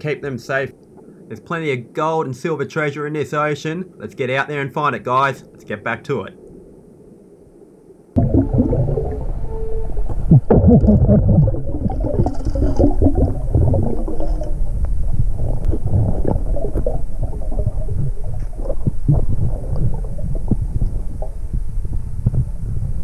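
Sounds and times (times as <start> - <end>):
underwater gurgling and rumbling: 7.9 - 23.0
air bubbling underwater: 8.2 - 22.6.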